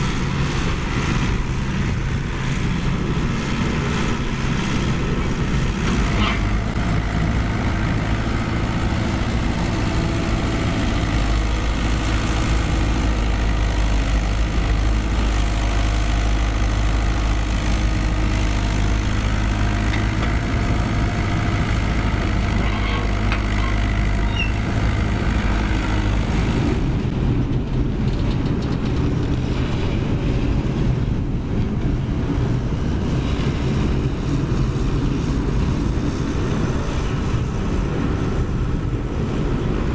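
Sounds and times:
excavator diesel engine: 0.0s - 39.9s
digging dirt: 3.5s - 26.5s.

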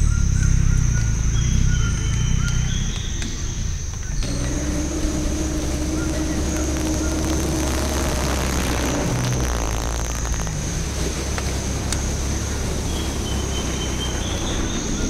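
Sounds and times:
bird chirps: 0.0s - 10.6s, 11.9s - 15.0s
truck engine running: 0.0s - 15.0s
steady high-pitched drone: 4.2s - 15.0s
water splashing: 4.2s - 15.0s.

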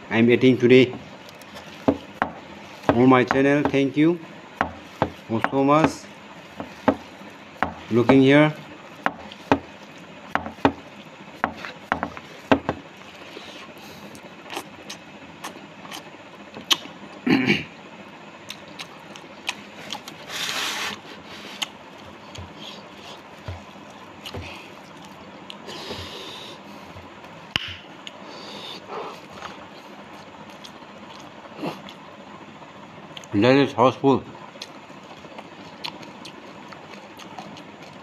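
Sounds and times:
chewing and lip smacks: 14.0s - 17.0s, 18.4s - 20.3s, 21.4s - 25.7s, 29.1s - 32.1s, 33.1s - 33.3s, 34.5s - 38.0s.

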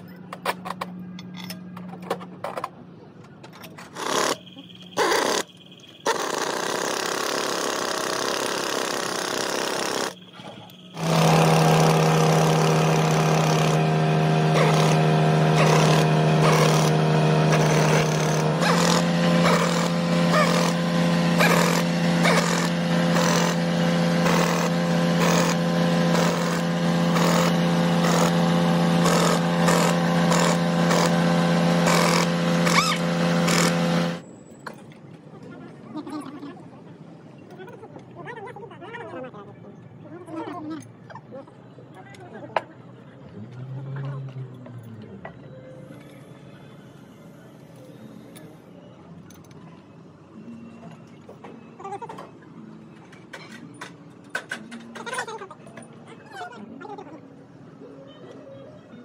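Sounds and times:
workshop clatter: 0.0s - 35.3s, 50.8s - 56.4s
machine humming loudly: 4.0s - 34.2s.

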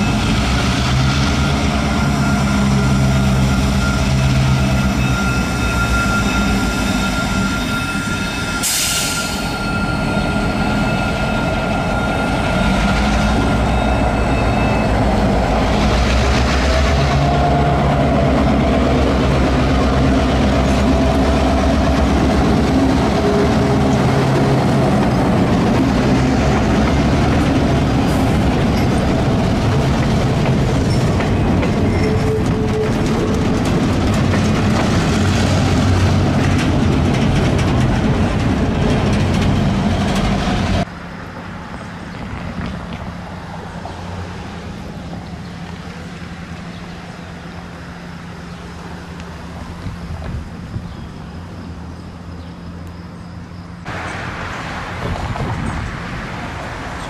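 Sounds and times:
diesel locomotive throbbing: 0.0s - 52.3s.

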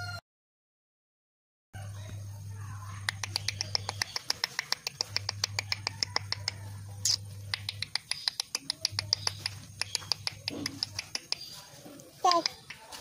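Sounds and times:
parrots chirping: 2.9s - 12.9s.

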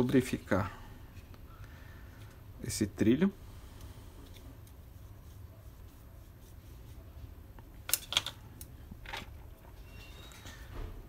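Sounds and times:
low steady hum: 0.0s - 11.0s
small plastic parts clicking: 7.9s - 9.3s.

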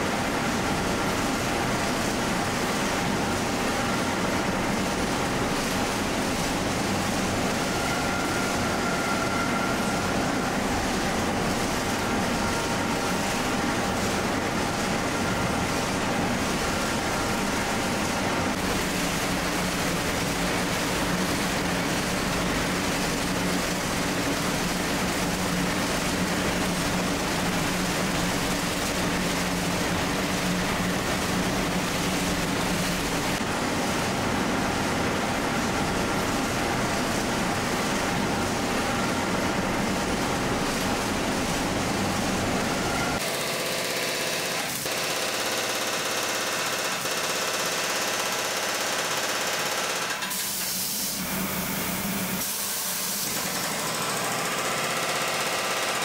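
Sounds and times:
factory machinery and fans humming: 0.0s - 56.0s.

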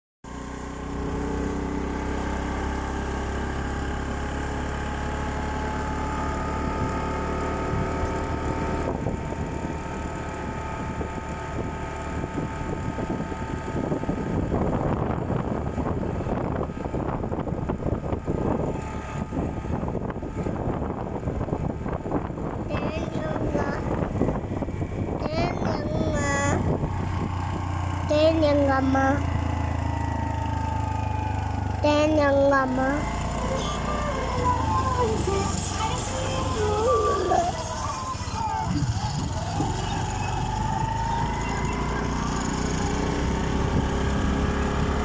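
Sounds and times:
vehicle engine running: 0.2s - 45.0s
wind buffeting microphone: 8.8s - 37.8s, 38.6s - 45.0s.

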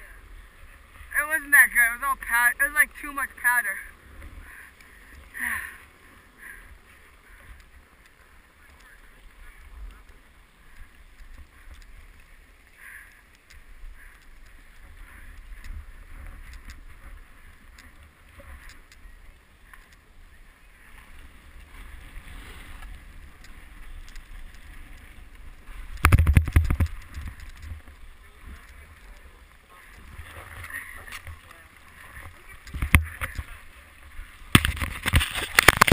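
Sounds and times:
skis scraping over snow: 0.1s - 35.9s
wind rumbling on microphone: 13.4s - 35.9s.

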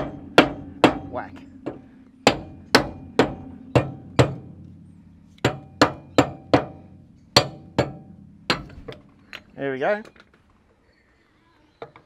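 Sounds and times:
hammer striking steel: 0.0s - 4.5s, 7.4s - 9.0s.

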